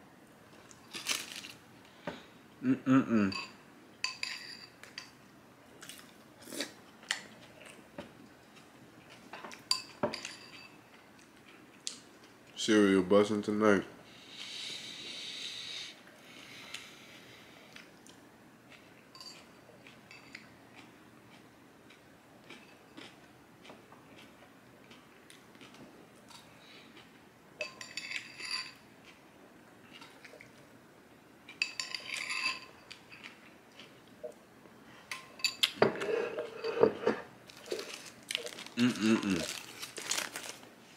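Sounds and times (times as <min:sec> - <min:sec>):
spoon clinking on ceramic bowl: 0:19.1 - 0:19.4
spoon scraping ceramic bowl: 0:35.4 - 0:37.3.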